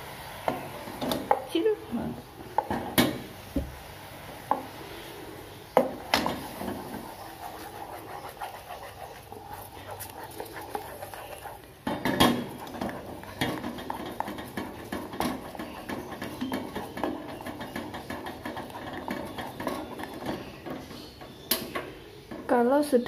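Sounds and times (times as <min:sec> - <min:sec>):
syrup simmering: 0:02.4 - 0:21.4
wooden spatula scraping saucepan: 0:05.8 - 0:21.4.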